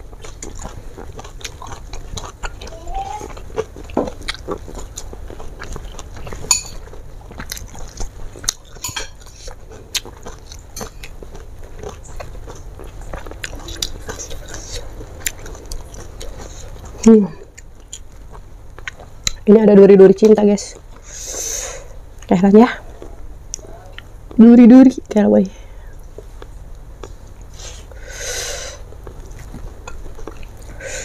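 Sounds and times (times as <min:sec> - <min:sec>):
person chewing with wet mouth clicks: 0:00.1 - 0:19.4.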